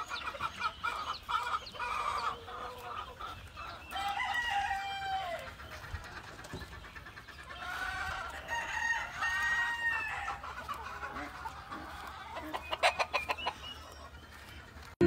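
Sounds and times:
chickens clucking: 0.0 - 15.0
rooster crowing: 3.9 - 5.5, 7.8 - 10.3.

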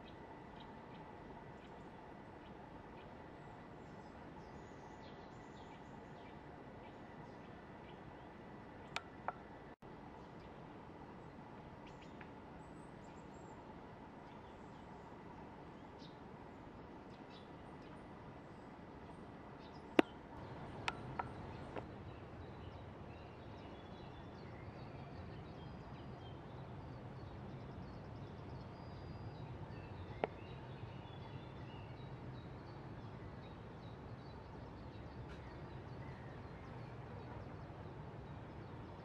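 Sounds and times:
steady low hiss: 0.0 - 39.0
distant bird chirps: 17.0 - 39.0.

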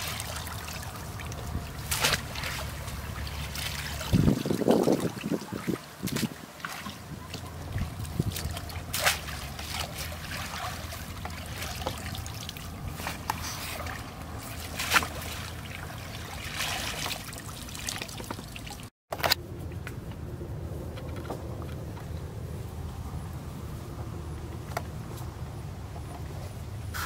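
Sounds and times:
steady low rumble: 0.0 - 16.7, 19.4 - 26.9
stream water splashing: 0.0 - 18.9.

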